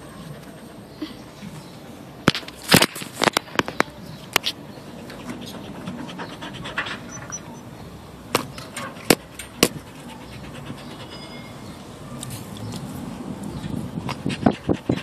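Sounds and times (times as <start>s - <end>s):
dog panting: 0.1s - 1.7s, 4.7s - 7.8s, 8.7s - 11.7s, 13.6s - 15.0s.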